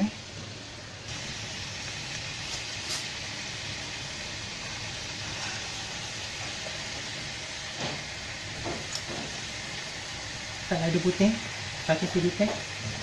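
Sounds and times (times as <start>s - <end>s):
fish frying in oil: 0.0s - 13.0s.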